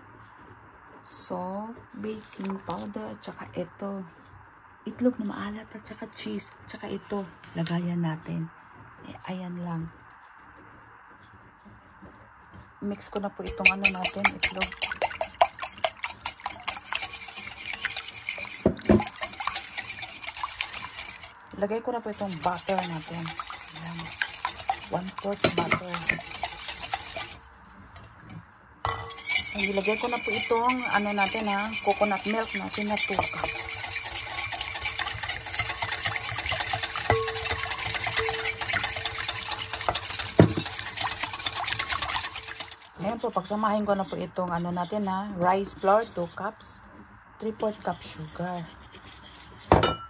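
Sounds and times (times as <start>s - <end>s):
whisk wires clinking against glass bowl: 13.4s - 46.2s, 49.7s - 50.0s.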